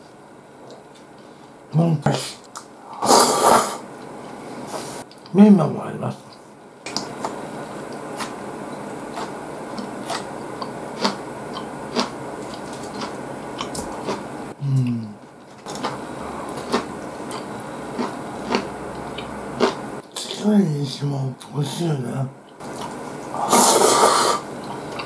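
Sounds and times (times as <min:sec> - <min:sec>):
chewing noodles: 0:09.1 - 0:14.2, 0:15.4 - 0:20.3
person humming: 0:14.6 - 0:15.2.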